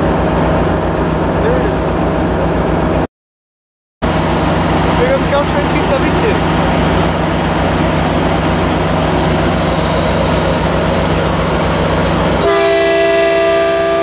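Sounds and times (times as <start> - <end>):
diesel locomotive engine pulsing: 0.0 - 3.1, 4.0 - 14.0
train horn: 12.4 - 14.0.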